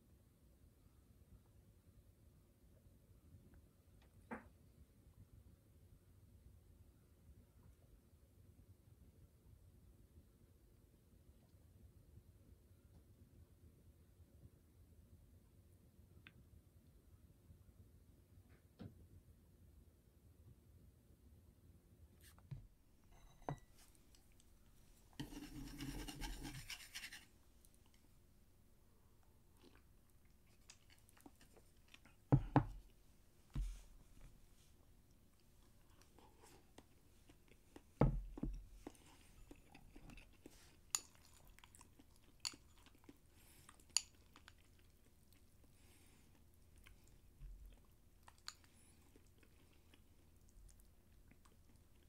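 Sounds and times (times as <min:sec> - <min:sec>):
quiet chewing: 0:29.0 - 0:52.0.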